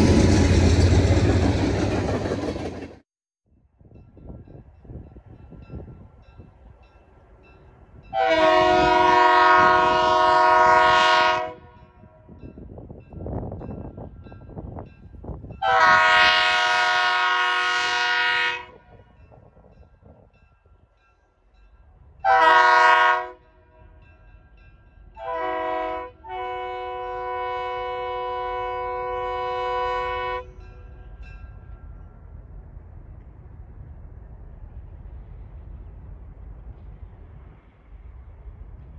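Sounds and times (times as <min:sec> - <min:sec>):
locomotive air horn blasts: 0:08.1 - 0:12.0, 0:15.6 - 0:18.9, 0:22.2 - 0:23.5, 0:25.2 - 0:30.6.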